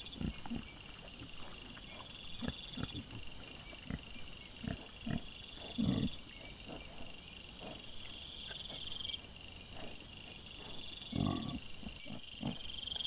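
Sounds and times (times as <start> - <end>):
boar grunting: 0.0 - 9.0, 9.6 - 13.0
crickets trilling: 0.0 - 13.0.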